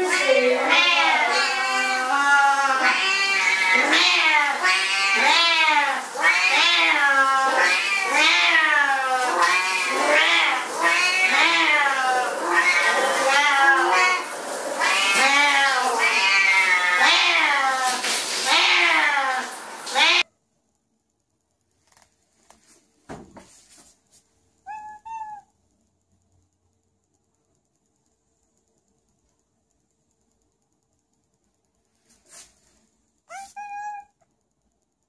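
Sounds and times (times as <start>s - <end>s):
cats meowing loudly: 0.0s - 20.3s, 24.7s - 25.5s, 33.3s - 34.2s.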